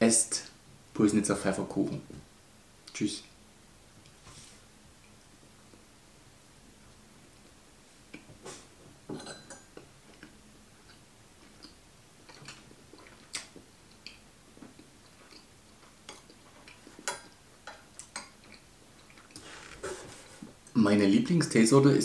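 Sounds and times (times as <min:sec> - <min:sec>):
faint chewing: 0:09.8 - 0:20.0.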